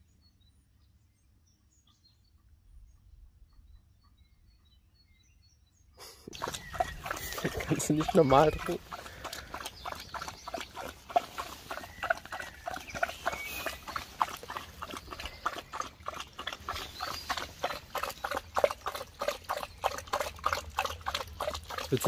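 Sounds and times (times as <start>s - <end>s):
dog lapping water: 6.3s - 22.0s.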